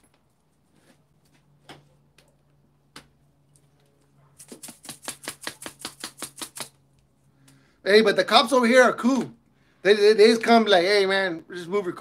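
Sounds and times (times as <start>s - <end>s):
faint steady hum: 6.7s - 10.4s.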